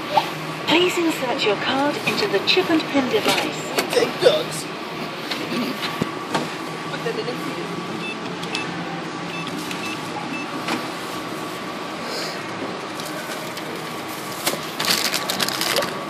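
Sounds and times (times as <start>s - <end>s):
self-checkout machine hum: 0.0s - 16.0s
plastic bag rustling: 14.2s - 16.0s.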